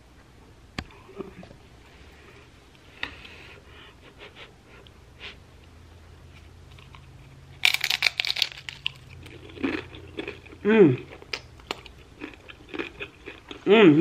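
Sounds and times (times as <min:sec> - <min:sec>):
chip crunching: 0:06.7 - 0:13.7.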